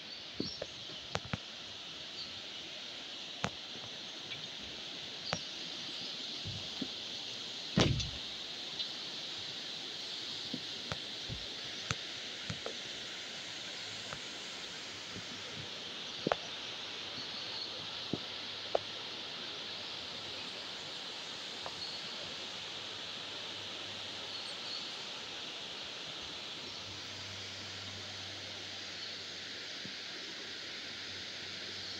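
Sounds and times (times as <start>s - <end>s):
sharp knocks: 7.8s - 8.2s.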